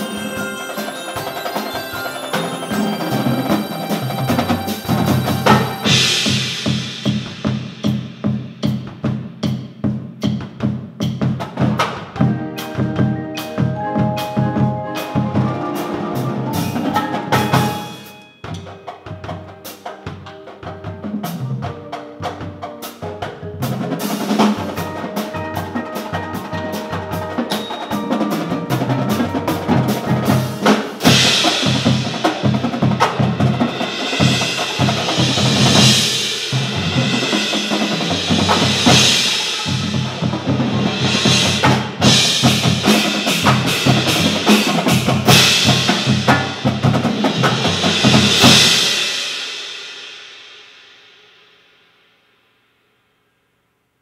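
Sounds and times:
marimba and mallet notes: 0:00.0 - 0:06.8, 0:12.2 - 0:48.8
sustained cymbal wash: 0:00.0 - 0:08.3
marching drums: 0:00.0 - 0:50.4.

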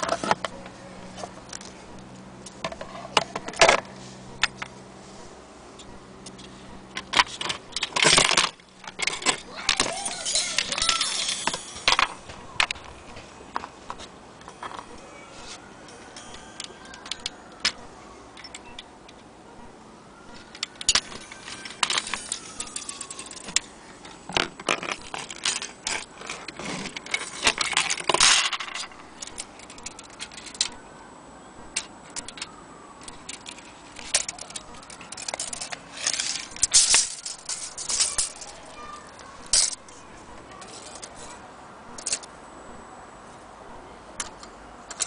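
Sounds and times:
metal clock parts clinking: 0:05.8 - 0:12.9, 0:15.8 - 0:19.3, 0:20.3 - 0:30.8, 0:31.7 - 0:42.3, 0:44.2 - 0:45.0.

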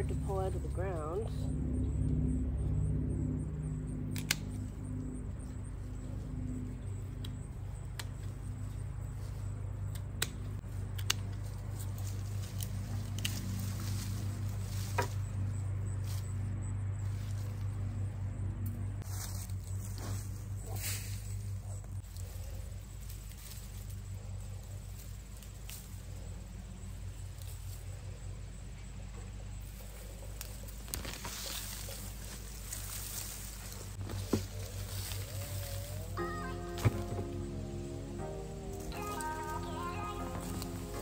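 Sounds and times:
steady low hum: 0:00.0 - 0:41.0
brittle stems snapping: 0:04.1 - 0:04.6, 0:07.2 - 0:08.3, 0:09.8 - 0:11.5, 0:12.4 - 0:14.0, 0:30.4 - 0:33.2
rustling of dry plants: 0:04.2 - 0:18.2, 0:19.0 - 0:41.0.

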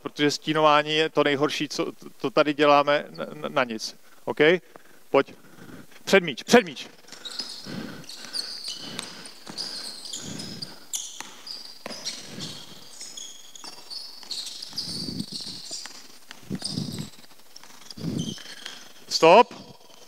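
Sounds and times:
sneakers squeaking on floor: 0:03.0 - 0:03.6, 0:06.7 - 0:20.0
basketball dribbling on hardwood: 0:07.2 - 0:18.2.

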